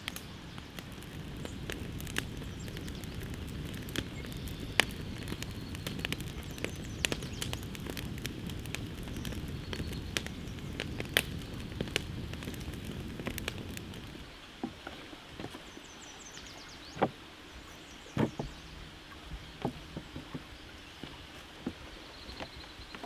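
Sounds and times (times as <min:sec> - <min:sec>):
campfire crackling and popping: 0:00.0 - 0:14.8
knocks and thuds on wooden boards: 0:18.2 - 0:18.6.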